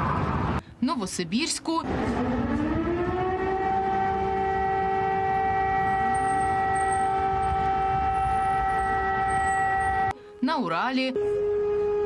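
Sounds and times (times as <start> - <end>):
street noise: 0.0 - 12.0
fainter rising siren tone: 1.8 - 10.1
air-raid siren wailing: 1.8 - 10.2, 11.1 - 12.0.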